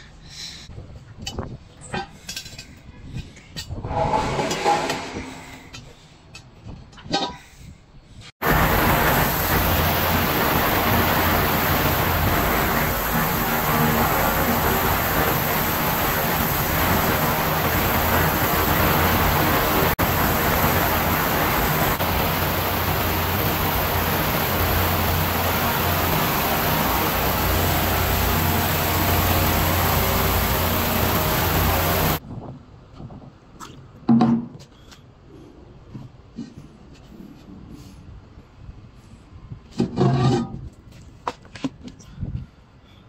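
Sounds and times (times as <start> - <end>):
low electrical hum: 8.4 - 32.2
ultrasonic cleaner hissing: 8.4 - 32.2.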